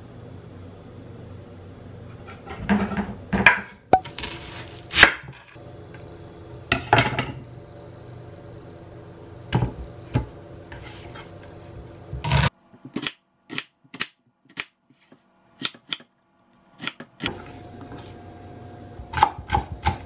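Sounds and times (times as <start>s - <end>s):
low steady hum: 0.0s - 14.5s
knife chopping onion on wood: 15.6s - 16.1s, 19.1s - 20.0s.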